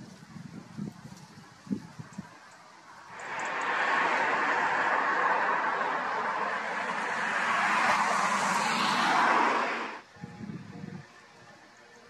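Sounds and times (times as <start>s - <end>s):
car tyres hissing on road: 0.9s - 10.0s
car passing by: 2.4s - 10.1s.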